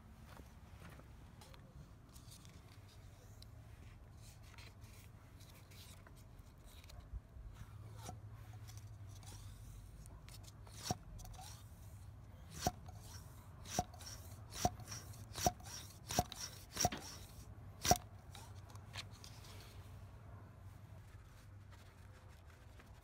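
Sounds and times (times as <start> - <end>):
syringe pumping clicks: 12.5 - 18.8.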